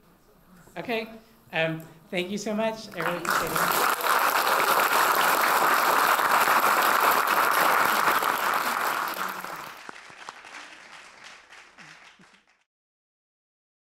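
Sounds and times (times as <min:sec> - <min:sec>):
audience applauding: 0:03.0 - 0:12.7.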